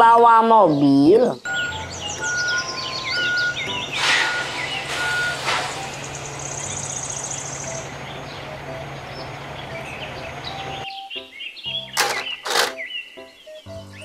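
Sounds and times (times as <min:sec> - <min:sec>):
truck engine driving past: 0:01.5 - 0:10.8
short bursts of noise: 0:04.0 - 0:06.2.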